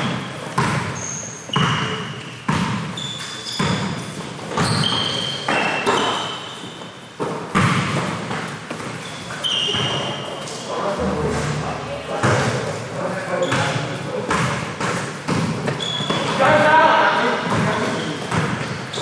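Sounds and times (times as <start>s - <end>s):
basketball bouncing on hardwood floor: 0.0s - 3.0s, 7.2s - 8.9s, 11.0s - 12.8s, 13.4s - 16.4s, 17.4s - 19.0s
shoes squeaking on floor: 0.0s - 19.0s.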